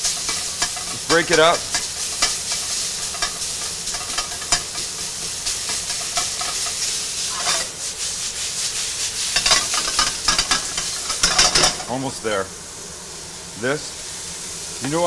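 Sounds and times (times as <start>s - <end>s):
utensil scraping a pan: 0.0s - 12.0s
meat sizzling in a wok: 0.0s - 15.0s.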